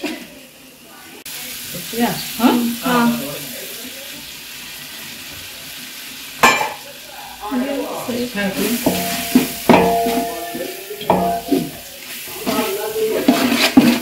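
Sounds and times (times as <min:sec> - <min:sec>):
onions and tomatoes sizzling: 0:00.0 - 0:14.0
ladle clanking on pot: 0:06.4 - 0:06.8, 0:08.8 - 0:11.9
metal ladle scraping a pot: 0:08.8 - 0:11.8, 0:12.4 - 0:14.0.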